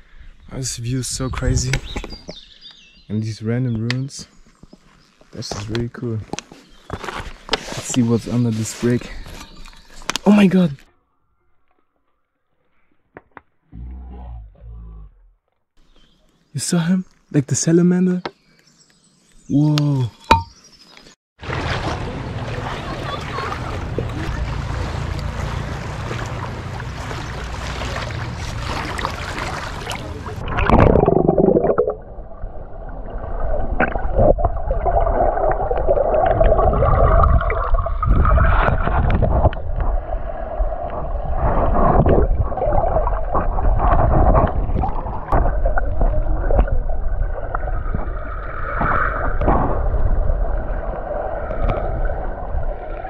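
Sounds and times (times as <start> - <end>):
sea waves: 21.4 - 30.7
splash into water: 21.4 - 31.8
wind on microphone: 36.2 - 53.0
dull knocks underwater: 41.4 - 50.5.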